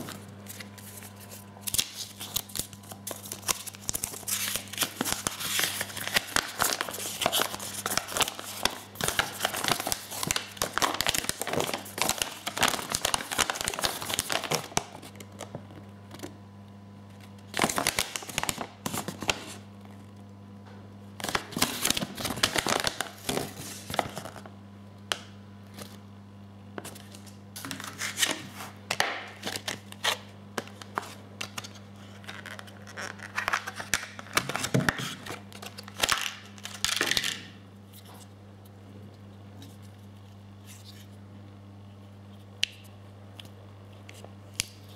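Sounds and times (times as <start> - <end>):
paper crinkling and rustling: 0.0 - 16.3, 17.1 - 19.7, 21.2 - 24.5, 26.8 - 37.2.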